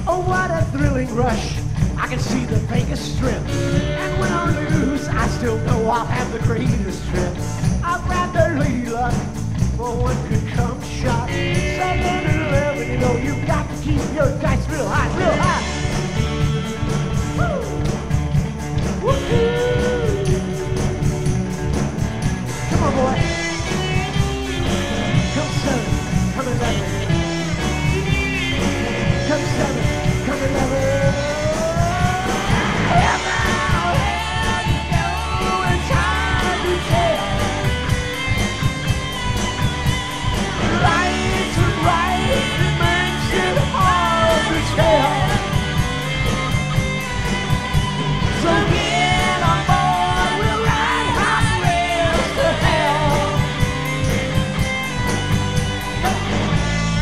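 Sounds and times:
person singing: 0:00.0 - 0:15.9, 0:19.0 - 0:21.4, 0:27.7 - 0:37.8, 0:40.6 - 0:45.9, 0:48.3 - 0:53.8
drum kit beat: 0:00.0 - 0:57.0
electric guitars: 0:00.0 - 0:57.0.

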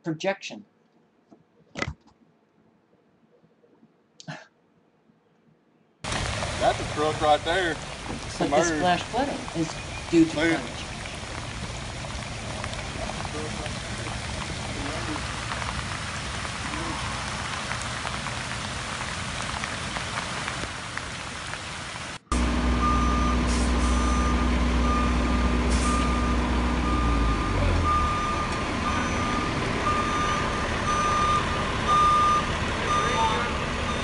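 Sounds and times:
truck engine low hum: 0:06.0 - 0:34.0
steady hiss: 0:06.1 - 0:22.3
truck reversing alarm beeping: 0:22.3 - 0:34.0.

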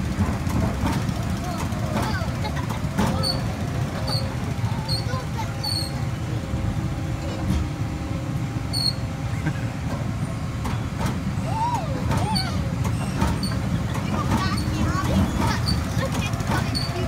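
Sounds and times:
bounce ride low rumble: 0:00.0 - 0:17.0
child whooping: 0:11.4 - 0:12.7.

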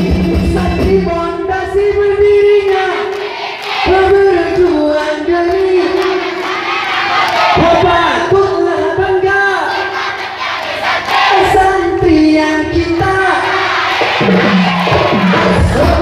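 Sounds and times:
drum beat: 0:00.0 - 0:03.1, 0:11.3 - 0:16.0
choir singing over pa: 0:02.7 - 0:07.8, 0:09.5 - 0:12.0, 0:13.0 - 0:16.0.

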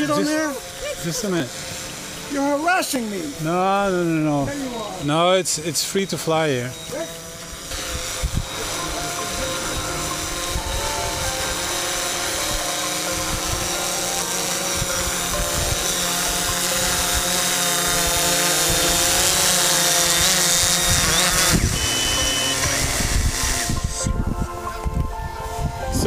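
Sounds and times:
drone propellers whirring: 0:00.0 - 0:26.0
wind noise on microphone: 0:07.5 - 0:11.6, 0:14.7 - 0:26.0.

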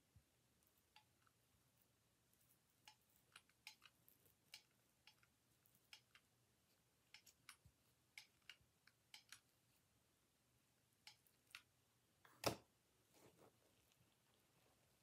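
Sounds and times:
hands clicking and tapping craft materials: 0:12.3 - 0:12.7.

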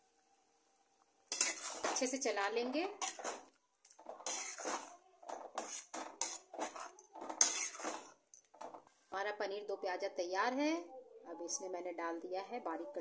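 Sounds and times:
spoon scraping metal pan: 0:01.3 - 0:08.9.

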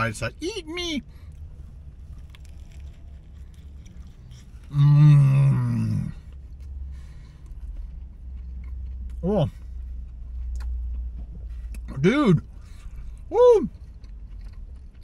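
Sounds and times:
steady low hum: 0:00.0 - 0:15.0
man chewing: 0:01.2 - 0:15.0.

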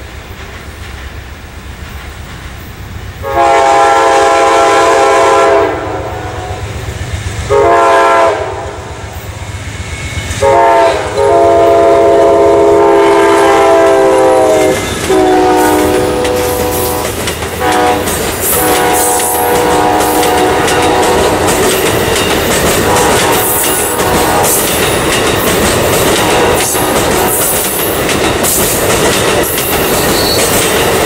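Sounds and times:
train rumbling: 0:00.0 - 0:31.0
locomotive air horn blasts: 0:03.2 - 0:06.7, 0:07.5 - 0:09.0, 0:10.4 - 0:21.6, 0:22.8 - 0:24.7, 0:26.2 - 0:27.5.

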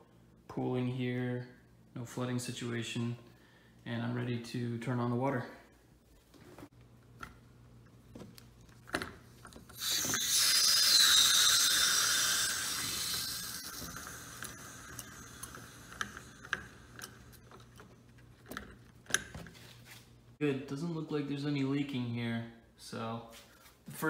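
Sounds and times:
water hissing through valve: 0:09.8 - 0:17.5.

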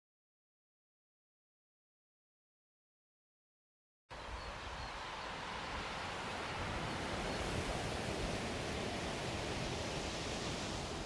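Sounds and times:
distant sea surf: 0:04.1 - 0:11.0.

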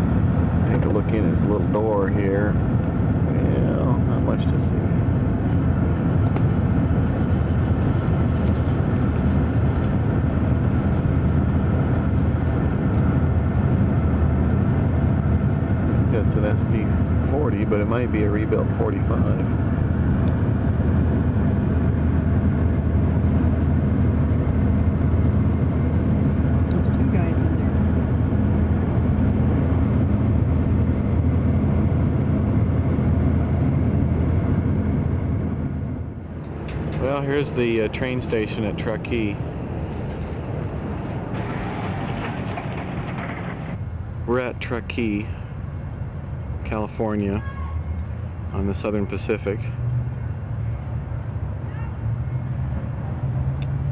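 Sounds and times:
road and wind noise in car: 0:00.0 - 0:53.9.

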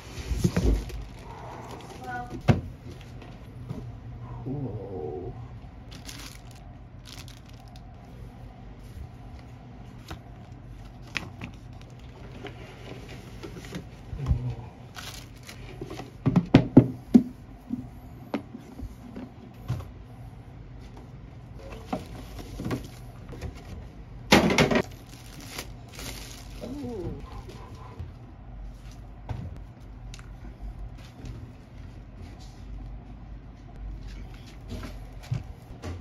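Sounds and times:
paper and plastic rustling: 0:00.0 - 0:03.4, 0:05.9 - 0:07.9, 0:10.0 - 0:14.0, 0:14.9 - 0:16.2, 0:21.6 - 0:23.8, 0:24.6 - 0:27.8.

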